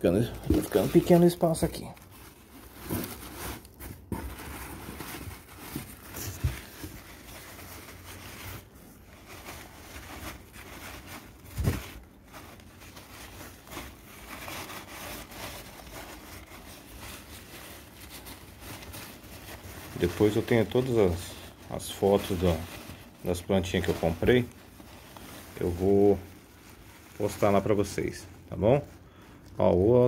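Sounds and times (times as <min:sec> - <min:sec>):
packing wrap crinkling: 0:00.0 - 0:30.0
dull thumps in cardboard box: 0:11.5 - 0:12.0.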